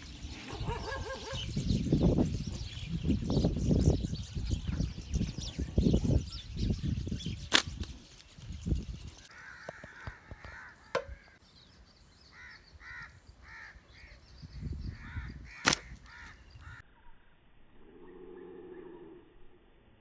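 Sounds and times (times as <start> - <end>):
bird calling: 0.0 - 17.1
slingshot snaps: 7.5 - 8.0, 15.6 - 16.1.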